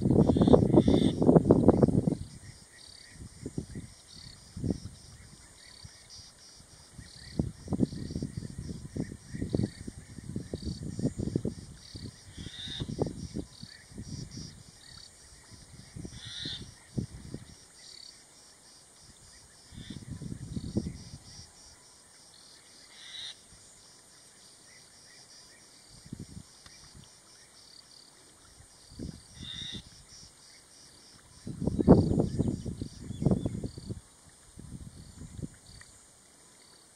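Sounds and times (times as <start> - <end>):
low rumbling wind gusts: 0.0 - 5.5, 6.8 - 14.8, 15.4 - 17.6, 19.7 - 21.4, 31.4 - 35.6.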